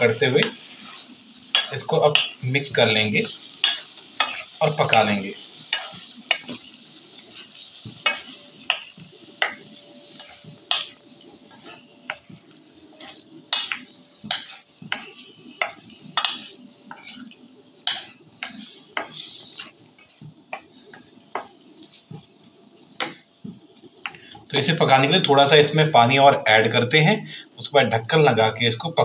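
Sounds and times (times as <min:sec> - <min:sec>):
light sizzle: 0:00.0 - 0:29.0
metal spatula scraping metal pan: 0:00.4 - 0:22.2.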